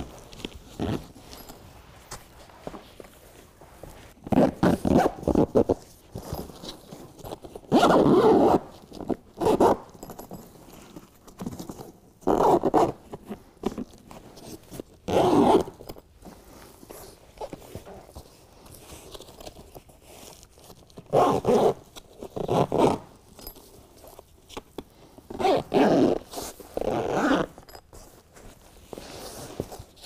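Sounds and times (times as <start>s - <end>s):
heavy zipper pulled: 0.1s - 1.6s, 4.2s - 10.3s, 12.2s - 13.2s, 14.5s - 15.9s, 21.0s - 23.6s, 25.3s - 27.8s.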